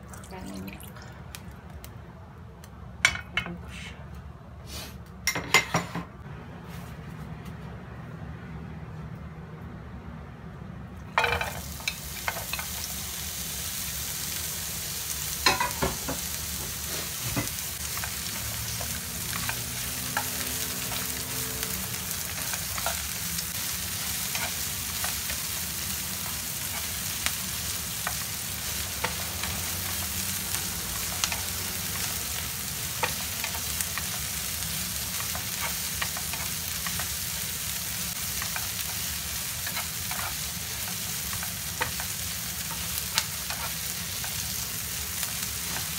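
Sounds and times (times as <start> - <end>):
onions sizzling in hot oil: 11.2 - 45.9.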